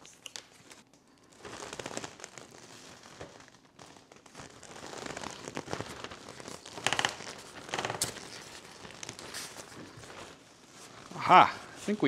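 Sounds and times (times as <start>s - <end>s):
fabric sleeve rustling: 0.7s - 12.0s.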